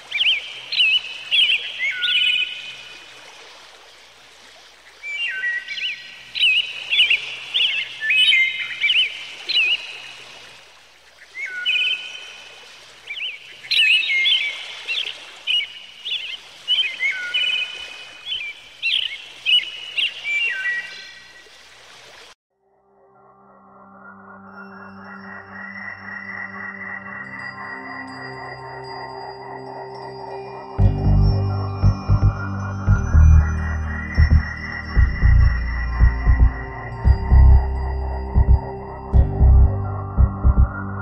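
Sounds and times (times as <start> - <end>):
songbird singing whistled notes: 5.1 - 10.1.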